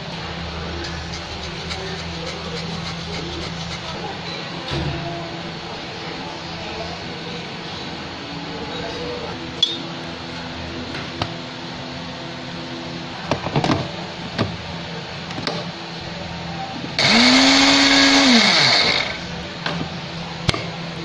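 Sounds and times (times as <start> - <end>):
blender grinding rice: 17.0 - 19.2.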